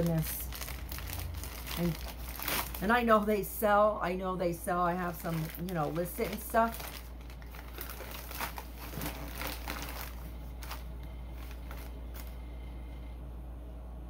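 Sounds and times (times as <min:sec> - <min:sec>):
rustling of packing: 0:00.0 - 0:03.0, 0:05.0 - 0:12.4
low hum: 0:00.0 - 0:14.0.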